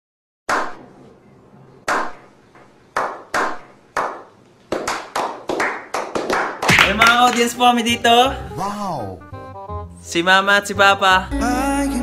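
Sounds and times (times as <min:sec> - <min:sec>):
hand claps with echo: 0:02.9 - 0:07.6
several people clapping: 0:02.9 - 0:07.6.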